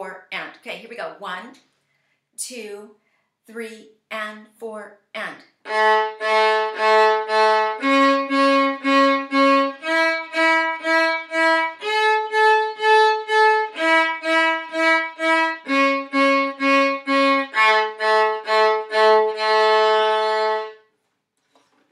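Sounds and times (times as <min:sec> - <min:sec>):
solo violin arpeggio: 0:05.6 - 0:20.8.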